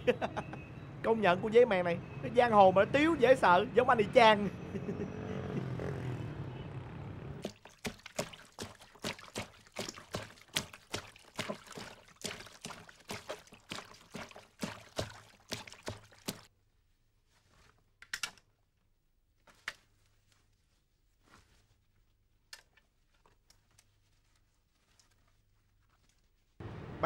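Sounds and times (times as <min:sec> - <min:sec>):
water splashing and sloshing: 0:07.4 - 0:16.5.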